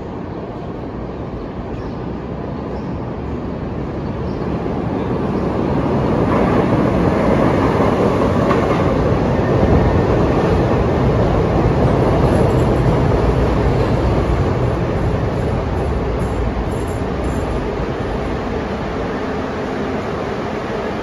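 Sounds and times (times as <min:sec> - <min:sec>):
train wheels on steel rails: 0:05.3 - 0:21.0.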